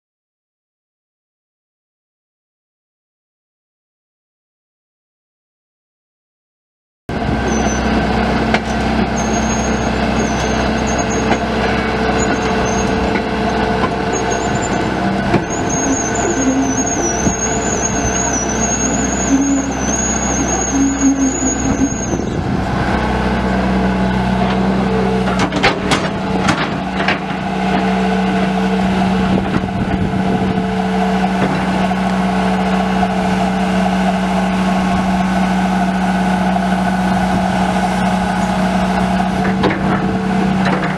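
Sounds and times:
excavator diesel engine running: 7.1 - 40.9.

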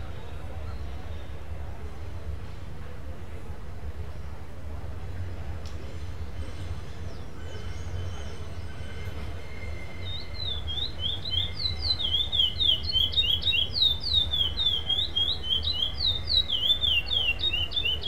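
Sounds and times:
finch singing whistled notes: 7.1 - 18.0.

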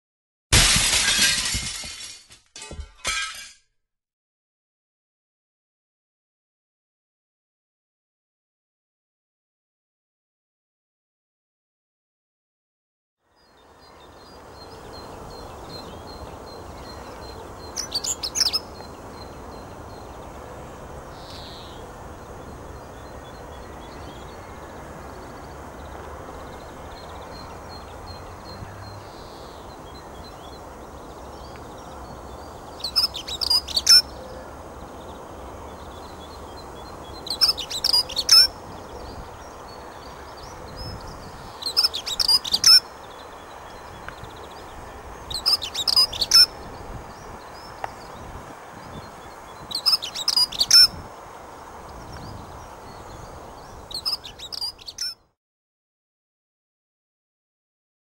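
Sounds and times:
bird warbling song: 13.3 - 20.4, 21.1 - 51.1, 52.0 - 55.2
low background noise: 13.3 - 55.0.

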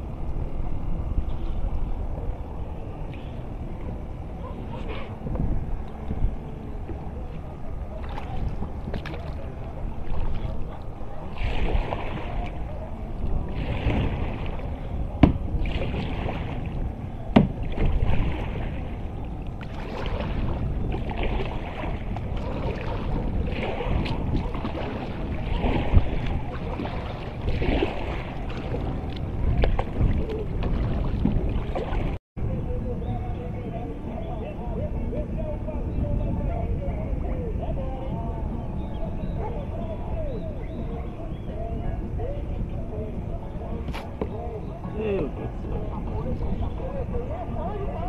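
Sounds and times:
paddle splashing in water: 6.7 - 32.2.

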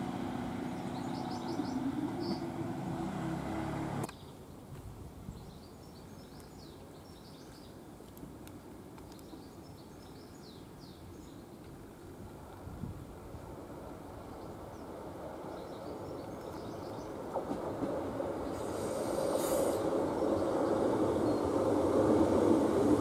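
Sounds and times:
diesel railcar engine running: 0.0 - 4.1
birds chirping: 0.4 - 4.4.

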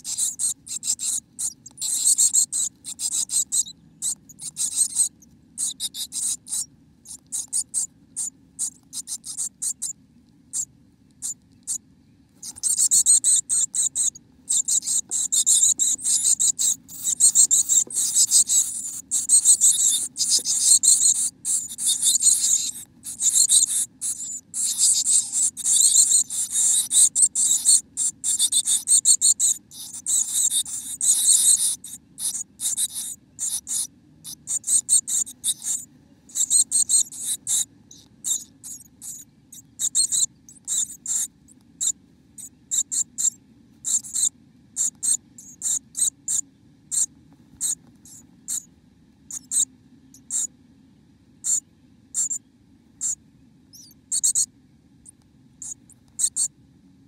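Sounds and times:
birds scratching inside nest box: 0.0 - 9.9, 12.4 - 39.2
faint low hum: 0.0 - 57.0.

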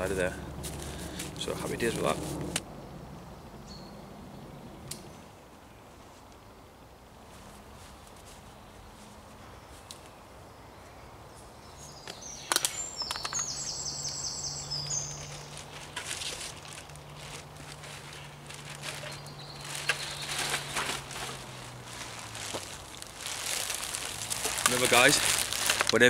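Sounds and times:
footsteps on dry leaves: 0.0 - 2.6, 13.4 - 26.0
rustling of camp gear: 0.0 - 2.6, 7.2 - 10.2, 11.9 - 26.0
bird singing: 0.0 - 5.9, 8.5 - 17.0, 18.4 - 21.7.

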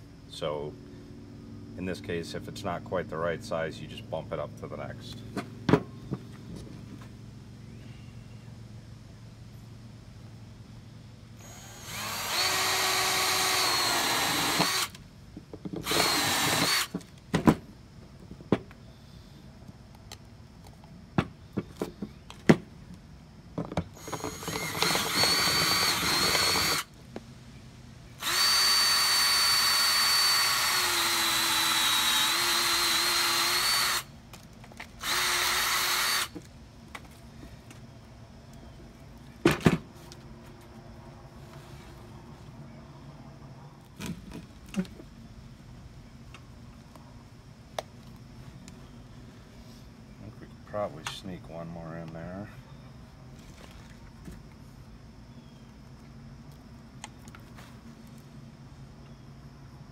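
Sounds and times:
cordless drill boring plastic: 11.4 - 15.0, 15.8 - 17.0, 24.0 - 26.9, 28.2 - 34.1, 35.0 - 36.4.

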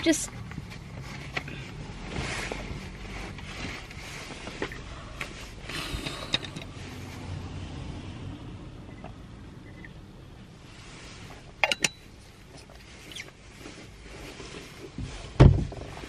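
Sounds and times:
handling rustle: 0.0 - 5.7.

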